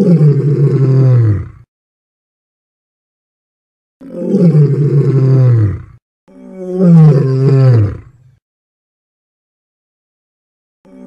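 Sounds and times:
lion roaring: 0:00.0 - 0:01.7, 0:04.0 - 0:08.1.

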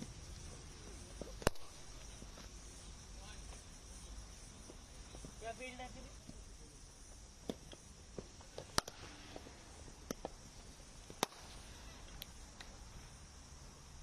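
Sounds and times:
cricket balls being struck: 0:00.0 - 0:02.6, 0:07.1 - 0:12.8.

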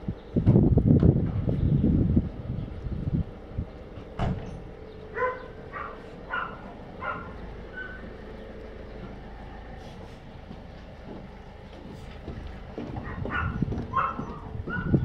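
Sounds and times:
puppies yipping: 0:05.1 - 0:08.2, 0:13.0 - 0:15.0.

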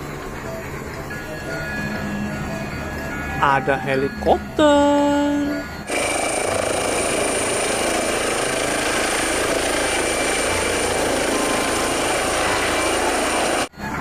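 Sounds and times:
helicopter engine and rotor: 0:05.8 - 0:13.7.

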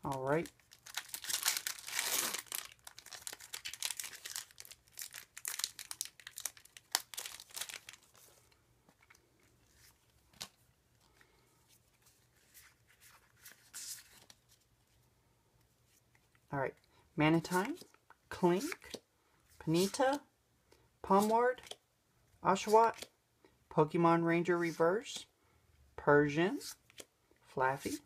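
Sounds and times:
foil wrapper crinkling and tearing: 0:00.0 - 0:08.2
cards being handled: 0:00.0 - 0:15.0, 0:17.4 - 0:19.0, 0:19.6 - 0:20.2, 0:22.6 - 0:23.1.

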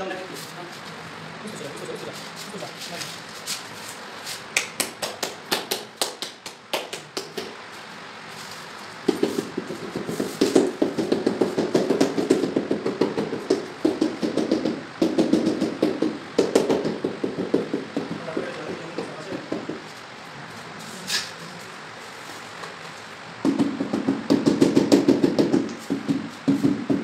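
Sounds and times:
tile being tapped: 0:09.1 - 0:18.4.

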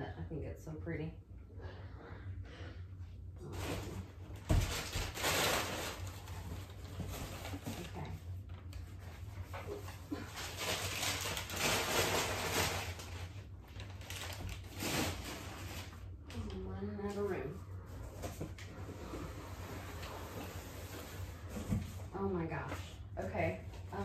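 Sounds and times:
crumpled newspaper rustling: 0:03.5 - 0:16.5.

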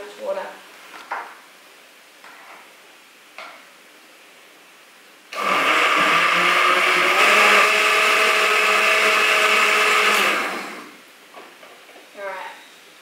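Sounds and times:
blender running at full speed: 0:05.3 - 0:11.0.

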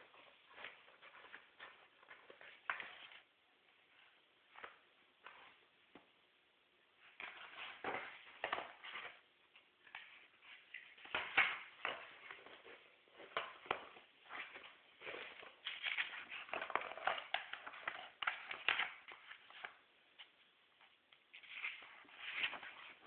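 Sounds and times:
magazine pages rustling: 0:09.8 - 0:20.3, 0:21.3 - 0:23.0.

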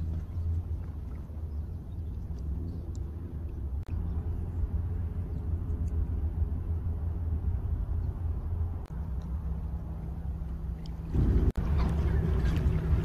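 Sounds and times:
wind buffeting microphone: 0:11.0 - 0:13.0.

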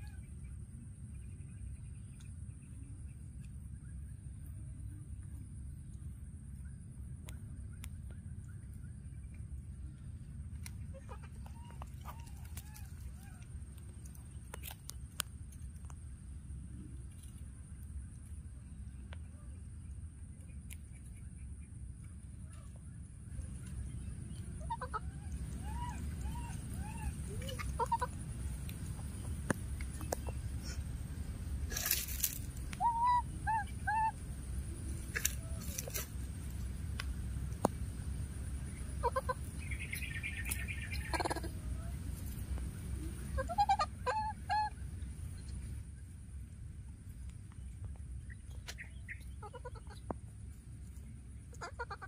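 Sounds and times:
steady low rumble: 0:00.0 - 0:52.0
faint crackles: 0:09.2 - 0:19.4, 0:22.4 - 0:32.9, 0:34.8 - 0:43.7
baby monkey crying: 0:24.6 - 0:28.2, 0:32.8 - 0:34.2, 0:39.0 - 0:39.5, 0:40.9 - 0:42.0, 0:43.3 - 0:44.8, 0:51.5 - 0:52.0.

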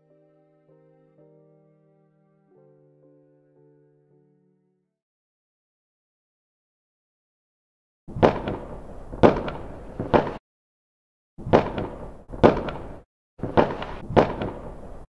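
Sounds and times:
fireworks bangs: 0:08.1 - 0:10.4, 0:11.4 - 0:15.0.

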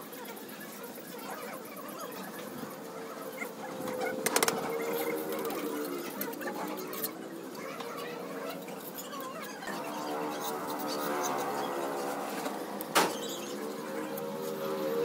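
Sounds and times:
small clicks: 0:04.2 - 0:04.7.

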